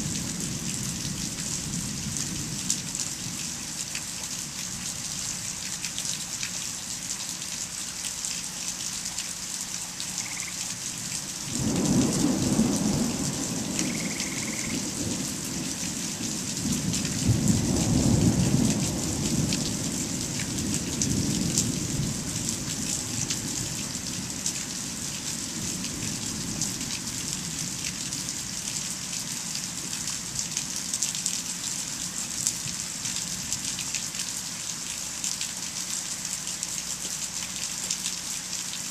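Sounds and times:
steady rain pattering: 0:00.0 - 0:38.9
thunder rumbling: 0:11.5 - 0:23.7.

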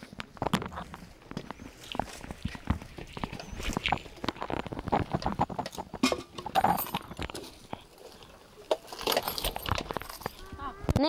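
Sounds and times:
dishes and metal pot clattering: 0:04.9 - 0:07.5.

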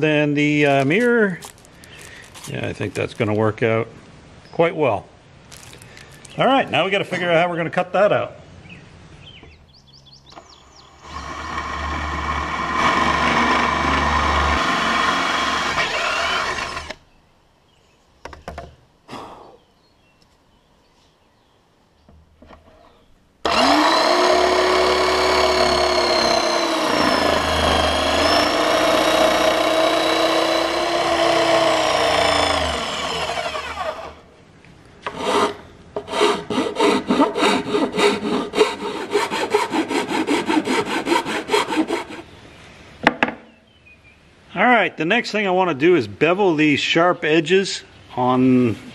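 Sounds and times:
cordless drill boring: 0:11.0 - 0:17.0, 0:23.4 - 0:34.2
jigsaw cutting board: 0:11.0 - 0:17.0, 0:23.5 - 0:34.2
hand file rasping: 0:23.5 - 0:34.1, 0:35.1 - 0:42.3.

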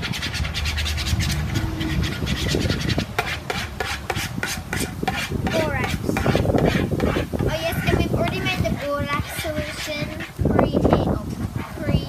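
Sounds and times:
highway traffic rumble: 0:00.0 - 0:12.0
hand squelching mixture in bowl: 0:02.1 - 0:10.5.

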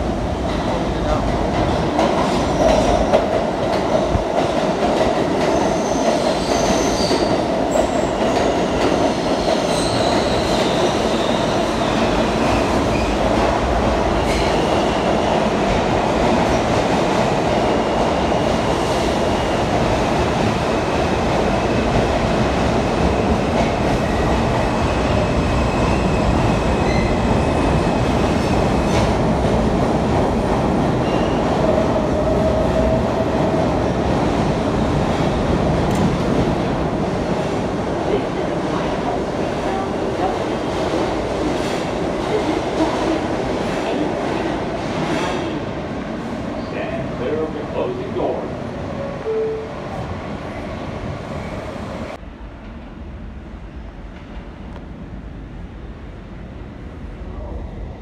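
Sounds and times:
subway train wheels rumbling: 0:00.0 - 0:58.0
train wheel squeals: 0:05.5 - 0:13.2, 0:25.6 - 0:28.0, 0:31.0 - 0:31.5.

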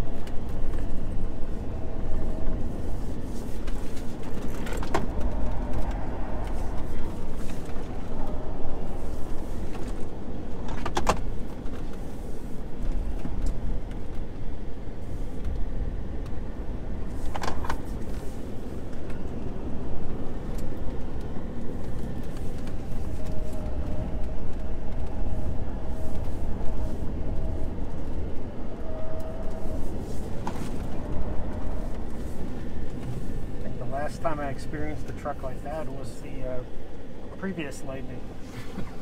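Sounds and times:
road and tyre rumble: 0:00.0 - 0:39.0
faint steady whine: 0:11.3 - 0:39.0.

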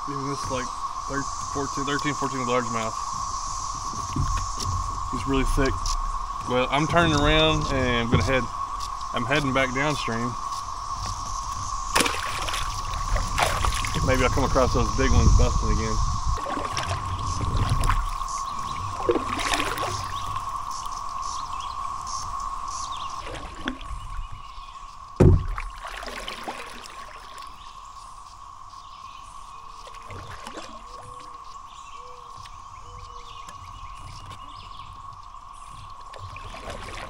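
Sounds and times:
kayak paddle strokes: 0:00.0 - 0:27.8, 0:29.8 - 0:31.4, 0:32.3 - 0:37.0
water splashing and trickling: 0:00.0 - 0:28.6, 0:29.4 - 0:37.0
cicadas chorusing: 0:00.0 - 0:37.0
thump: 0:25.2 - 0:25.7.

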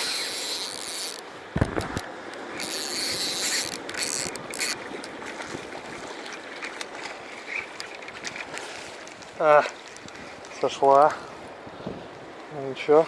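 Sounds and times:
fishing reel spinning: 0:00.0 - 0:01.2, 0:02.6 - 0:04.8.

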